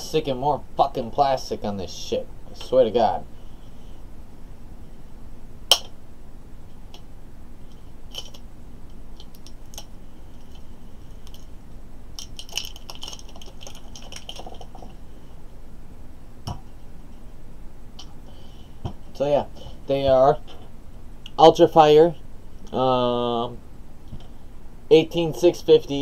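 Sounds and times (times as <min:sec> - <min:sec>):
sharp click: 0:05.7 - 0:06.0
plastic packaging crinkling: 0:12.2 - 0:15.0.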